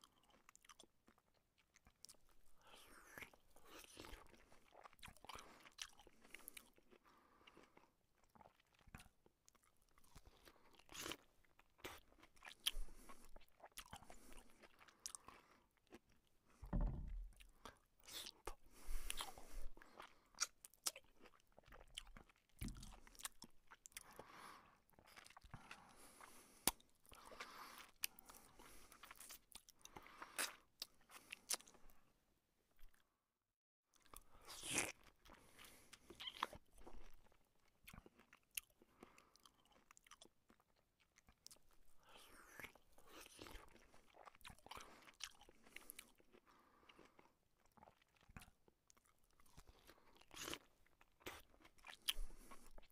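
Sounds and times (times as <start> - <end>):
chewing and crunching food: 0.0 - 33.2, 33.8 - 52.9
soft thuds: 16.6 - 17.4.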